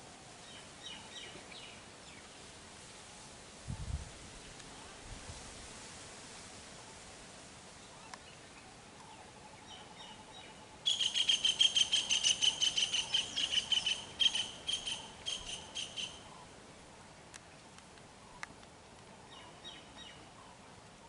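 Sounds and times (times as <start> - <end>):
bird chirping: 9.1 - 16.3.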